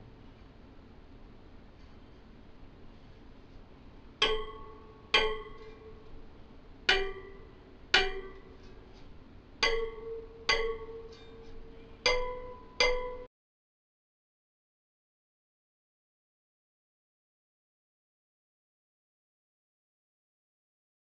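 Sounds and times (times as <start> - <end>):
wheel spokes plucked: 4.2 - 6.2, 6.9 - 13.3.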